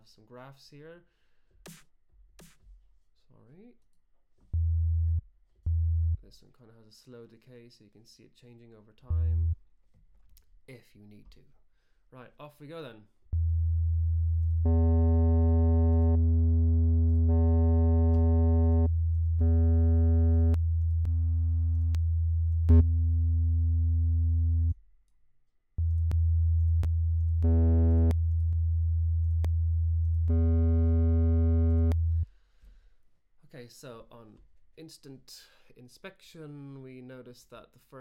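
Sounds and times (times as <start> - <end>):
low sine test tone: 9.1 - 9.6, 13.3 - 24.8, 25.8 - 32.3.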